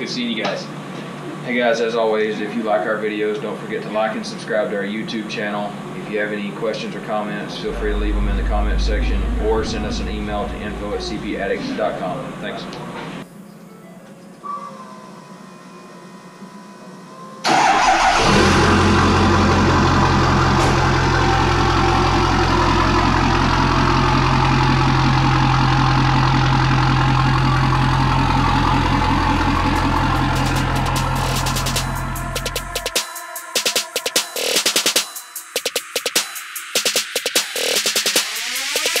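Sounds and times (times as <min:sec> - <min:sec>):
diesel engine idling: 0:07.5 - 0:13.2, 0:17.5 - 0:33.0.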